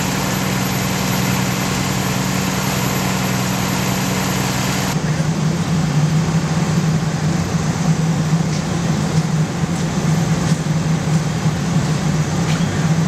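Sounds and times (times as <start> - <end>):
diesel engine running: 0.0 - 5.0.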